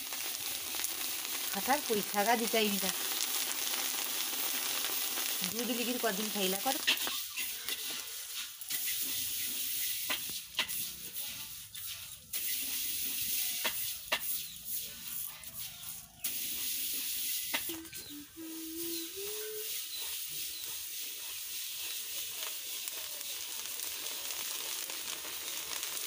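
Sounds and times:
rice sizzling in hot sand: 0.0s - 26.0s.

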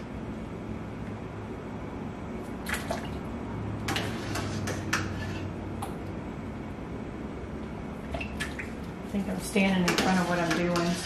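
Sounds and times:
steady low hum: 0.0s - 11.0s
water dripping and splashing: 2.6s - 3.3s, 8.0s - 9.0s.

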